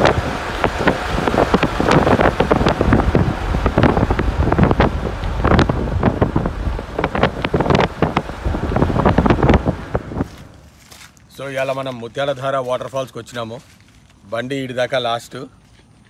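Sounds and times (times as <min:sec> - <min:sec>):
wind buffeting microphone: 0:00.0 - 0:10.7
vehicle noise: 0:00.0 - 0:16.0.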